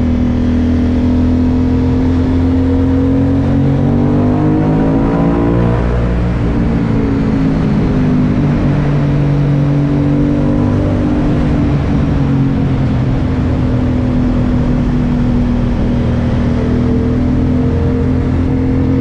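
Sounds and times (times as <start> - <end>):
motorcycle engine running: 0.0 - 19.0.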